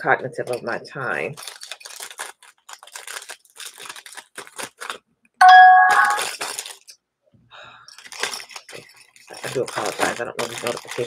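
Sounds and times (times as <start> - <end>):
electronic notification chime: 5.4 - 6.2.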